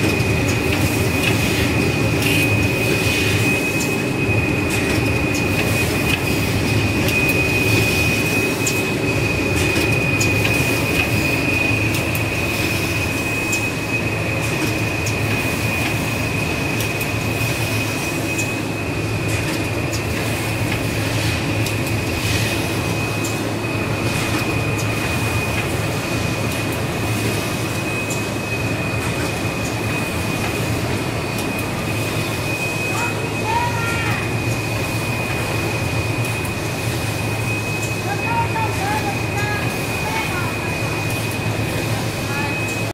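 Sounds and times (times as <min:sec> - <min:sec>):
packing machine whine: 0:00.0 - 0:42.9.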